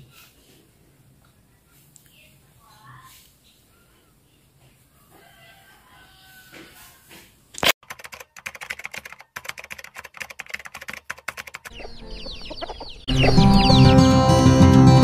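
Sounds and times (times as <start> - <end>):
rapid irregular clicks: 7.8 - 11.7
bird chirps: 11.6 - 14.1
loud guitar-led music: 13.1 - 15.0.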